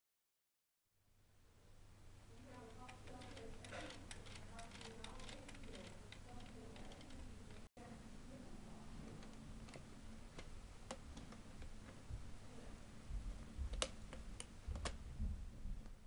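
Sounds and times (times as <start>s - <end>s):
plastic parts clicking: 2.8s - 7.7s.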